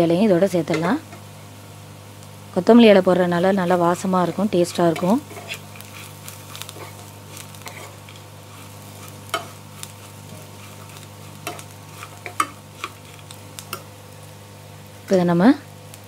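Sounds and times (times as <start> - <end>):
faint sizzle: 0.0 - 16.0
metal spatula scraping a pan: 3.4 - 13.2.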